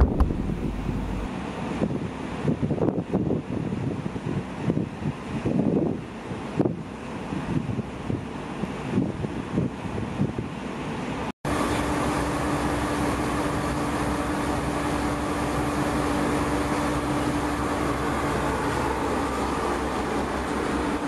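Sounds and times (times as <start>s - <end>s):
ferry machinery droning: 0.0s - 1.3s, 11.5s - 21.0s
steady hum tone: 0.0s - 1.3s
wind on microphone: 0.0s - 10.6s.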